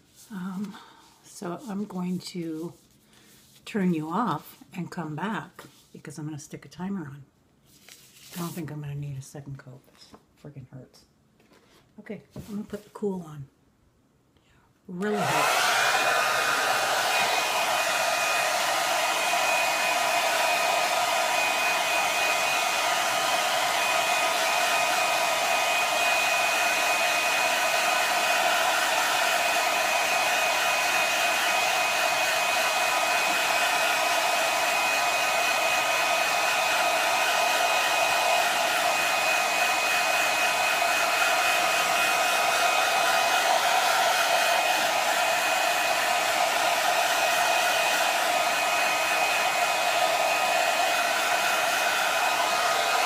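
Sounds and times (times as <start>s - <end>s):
hair dryer blowing: 14.9s - 53.0s.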